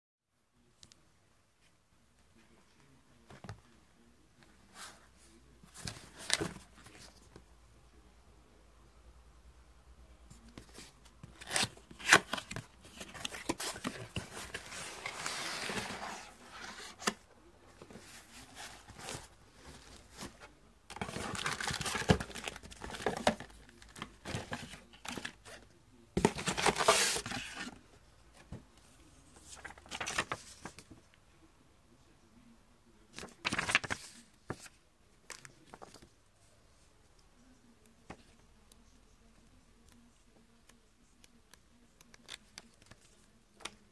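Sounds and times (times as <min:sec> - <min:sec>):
packaging rustling and crinkling: 0:20.9 - 0:25.4.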